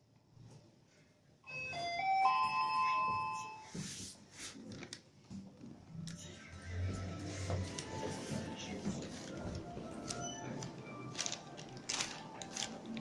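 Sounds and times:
elevator arrival chime: 1.5 - 3.8.

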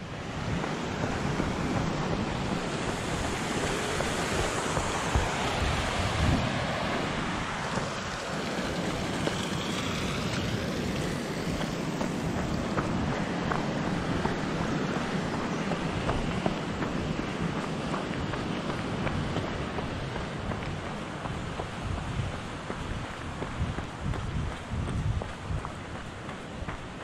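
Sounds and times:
stream cascading over rocks: 0.0 - 21.1
wind buffeting microphone: 0.0 - 27.0.

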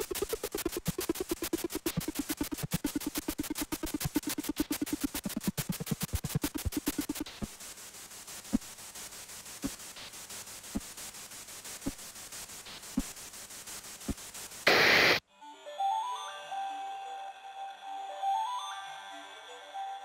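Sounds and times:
loud burst of static: 0.0 - 15.2
static hiss: 0.0 - 15.2.

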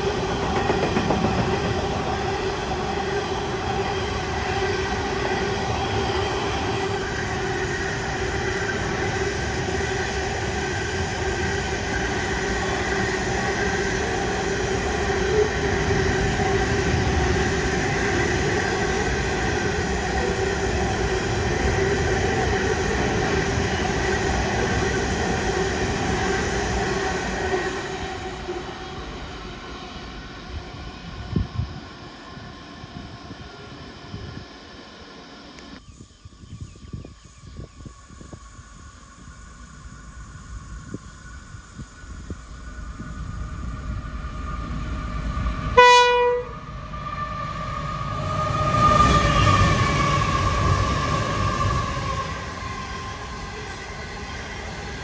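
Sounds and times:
train wagons rumbling on rails: 0.0 - 32.2.

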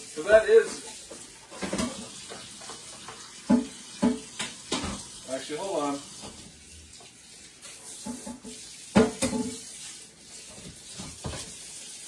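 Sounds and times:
tap water running in sink: 0.0 - 12.0.

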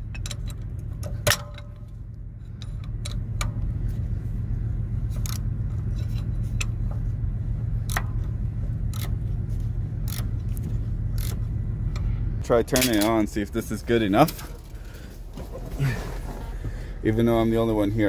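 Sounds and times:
steady low rumble: 0.0 - 18.0
sharp metallic clicks: 7.8 - 9.2, 10.0 - 12.1.

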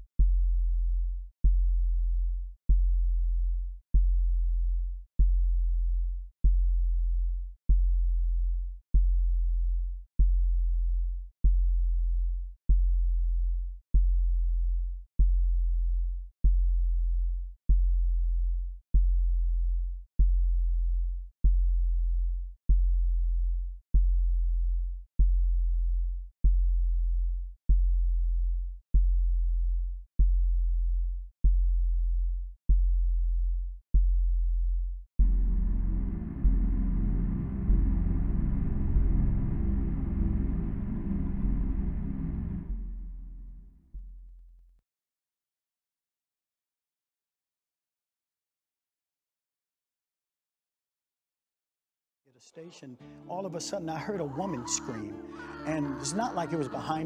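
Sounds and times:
deep electronic bass pulses: 29.0 - 43.8.

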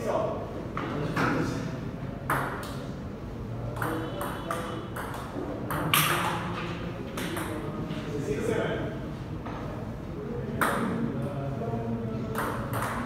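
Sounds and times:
table tennis ball clicking: 3.8 - 6.5, 12.3 - 13.0.

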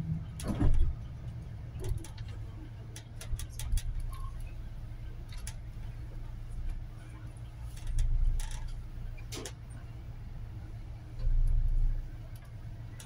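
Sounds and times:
bus engine rumble: 0.0 - 13.0.

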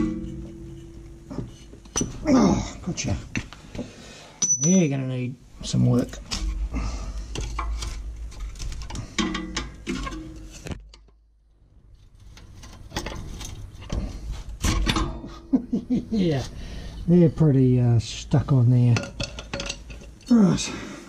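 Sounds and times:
metal clinks knocks and scraping: 0.0 - 2.2, 4.4 - 5.0, 12.1 - 15.3, 18.8 - 20.4.

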